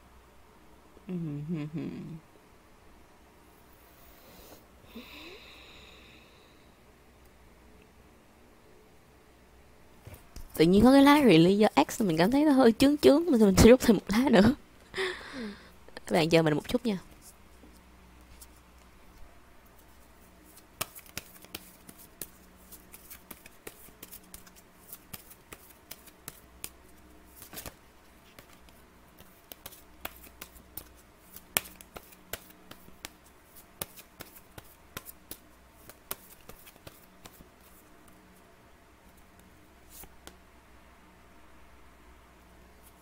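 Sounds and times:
low electrical hum: 0.0 - 43.0
cards being shuffled: 19.8 - 38.2.

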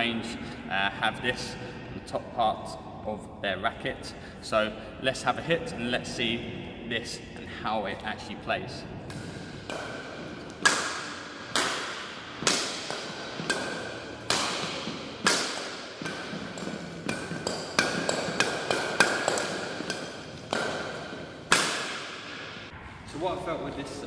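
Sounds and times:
racket hitting shuttlecock: 9.0 - 22.8.

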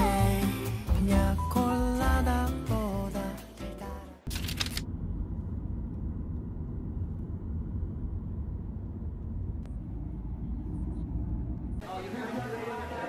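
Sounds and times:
background music: 0.0 - 4.3
car road noise rumble: 4.5 - 12.8.

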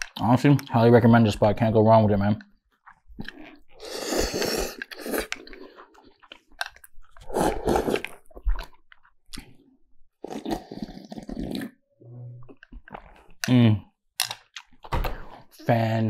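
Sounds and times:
person chewing: 2.4 - 11.8, 12.4 - 15.5
person slurping noodles: 3.3 - 6.2, 7.1 - 8.7, 10.2 - 11.8.

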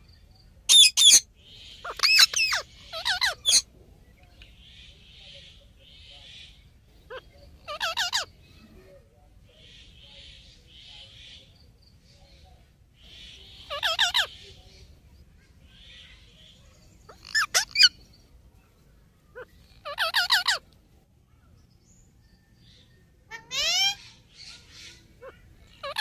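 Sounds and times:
parakeets calling shrilly: 0.7 - 3.7, 7.1 - 8.4, 13.0 - 14.6, 15.8 - 18.0, 19.3 - 20.6, 23.3 - 26.0.

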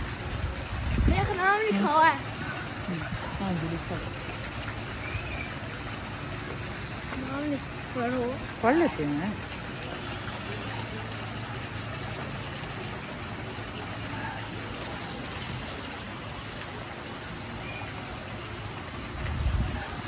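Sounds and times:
flowing water rushing: 0.0 - 20.0
low steady hum: 0.0 - 20.0.

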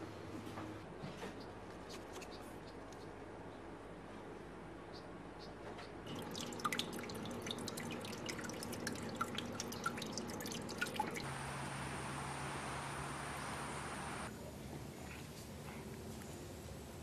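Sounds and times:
low hum: 6.1 - 14.3
water dripping: 6.1 - 14.3
steady hiss: 11.2 - 14.3
thin high whine: 11.2 - 14.3.

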